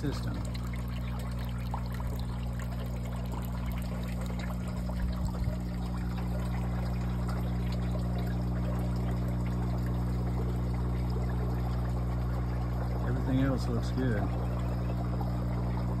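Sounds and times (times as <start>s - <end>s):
steady low hum: 0.0s - 16.0s
water pouring and trickling: 0.0s - 16.0s.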